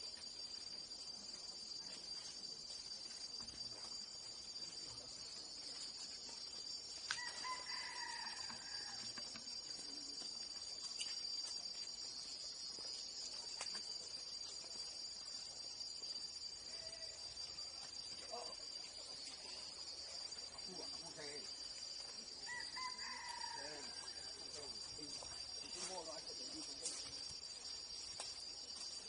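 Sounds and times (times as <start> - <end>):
insects droning: 0.0 - 29.0
rooster crowing: 7.1 - 9.2, 22.4 - 24.4.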